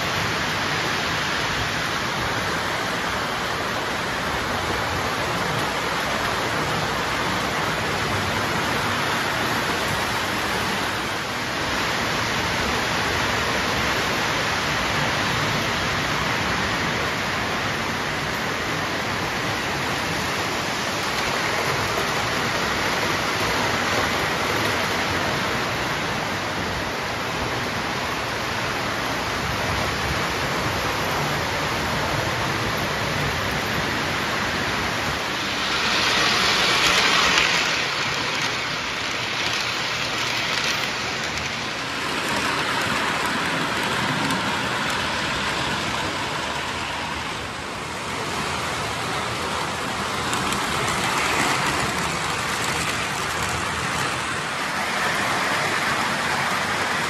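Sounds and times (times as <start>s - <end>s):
model train wheels rumbling on rails: 0.0s - 57.0s.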